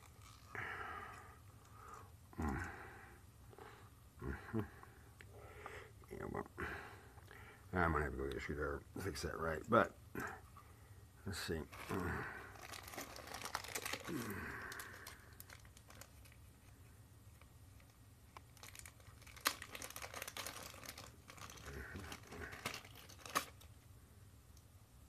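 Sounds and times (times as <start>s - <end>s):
plastic packaging crinkling: 0.0s - 0.6s, 11.5s - 16.8s, 17.4s - 23.8s.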